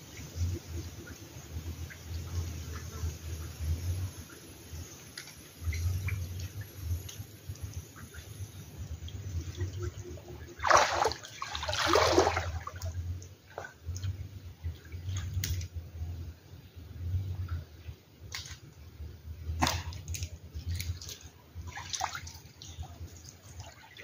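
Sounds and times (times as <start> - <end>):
water dripping: 4.9 - 15.8, 19.5 - 24.0
water sloshing around wader: 4.9 - 16.1, 19.5 - 24.0
loud splashes: 10.6 - 12.9.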